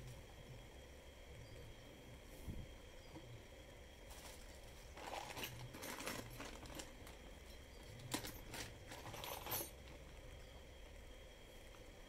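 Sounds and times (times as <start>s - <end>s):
metal bolts and screws clinking: 8.1s - 10.0s.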